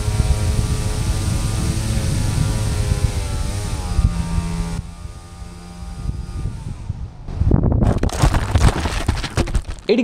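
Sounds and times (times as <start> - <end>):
wind rushing over microphone: 0.0 - 4.8, 5.4 - 9.2
electric motors and propellers whining: 0.0 - 7.6.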